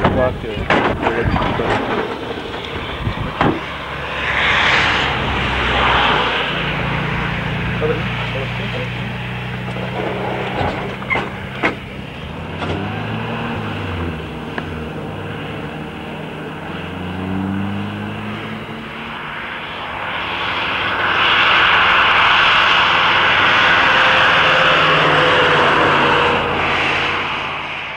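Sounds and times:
tyres rushing on wet road: 0.0s - 19.8s
vehicle engine running: 5.0s - 27.9s.

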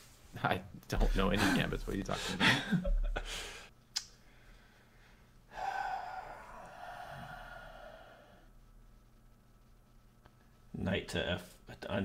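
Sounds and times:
person sighing: 5.5s - 8.5s.

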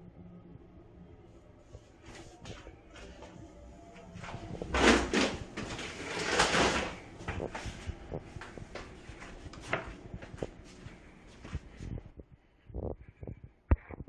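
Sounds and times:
door scraping: 4.3s - 7.7s.

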